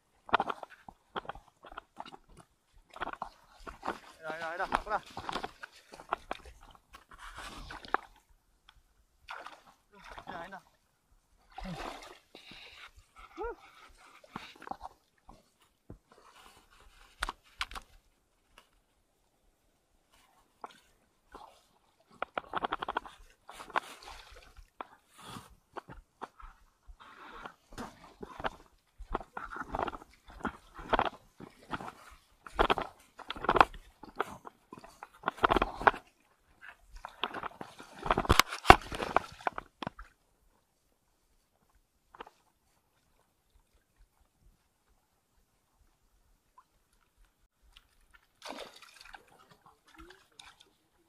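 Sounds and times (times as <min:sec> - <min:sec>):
seawater sloshing and splashing: 0:00.0 - 0:08.3, 0:09.2 - 0:13.2, 0:20.1 - 0:26.4, 0:27.0 - 0:40.2, 0:47.5 - 0:51.0
wading through shallow water: 0:00.0 - 0:51.0.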